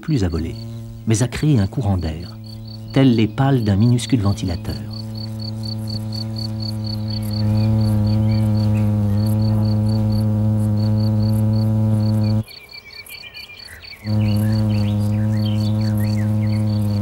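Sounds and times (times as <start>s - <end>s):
wasp wings buzzing: 0.0s - 12.6s, 13.9s - 17.0s.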